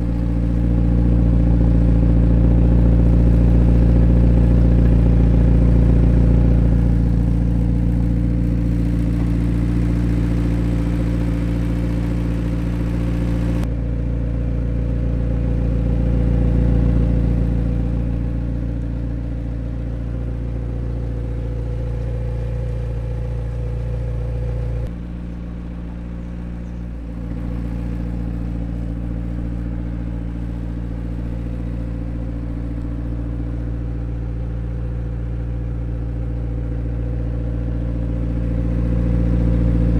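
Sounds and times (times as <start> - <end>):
car engine idling: 0.0 - 39.9.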